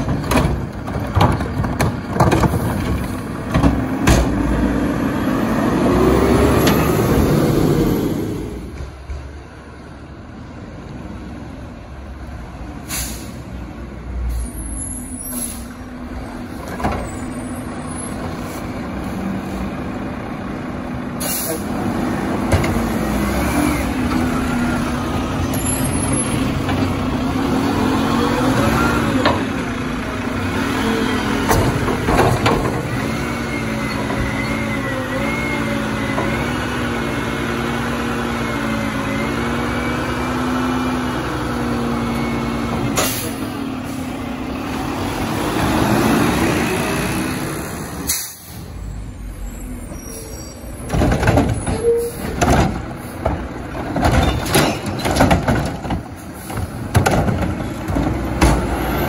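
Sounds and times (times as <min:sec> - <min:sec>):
diesel engine revving: 0:00.0 - 0:09.0, 0:15.2 - 0:59.0
air brake hisses: 0:12.8 - 0:13.5, 0:14.3 - 0:15.8, 0:21.2 - 0:21.7, 0:48.1 - 0:48.8.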